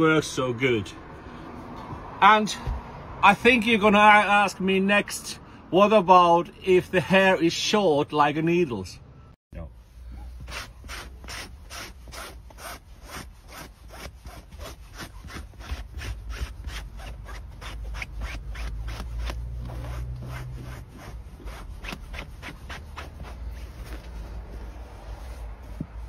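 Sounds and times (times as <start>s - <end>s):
hair remover scraping fabric: 10.0s - 26.0s.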